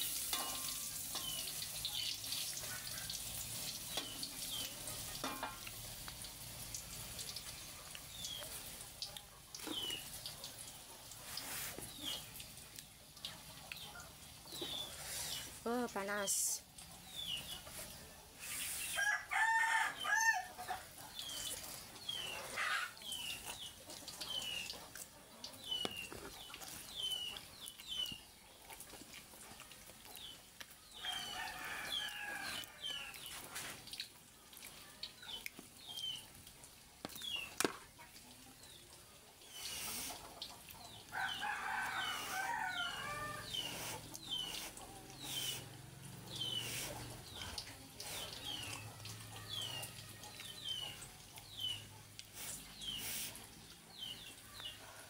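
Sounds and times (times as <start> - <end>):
chickens chirping: 16.9 - 28.7, 37.2 - 55.0
chickens clucking or crowing: 18.9 - 21.5, 22.1 - 23.2, 30.9 - 33.3, 40.0 - 47.5.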